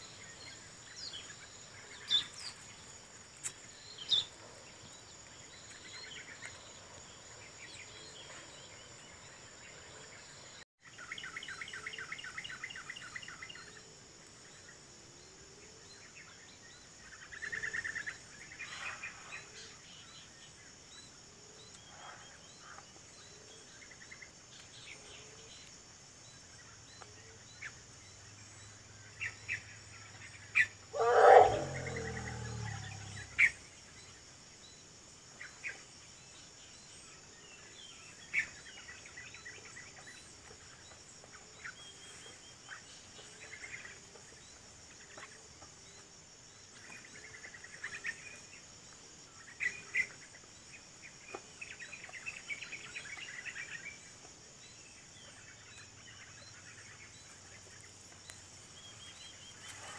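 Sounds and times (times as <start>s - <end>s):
high insect drone: 19.0s - 59.9s
bird chirps: 26.3s - 34.8s
elephant call: 30.6s - 33.6s.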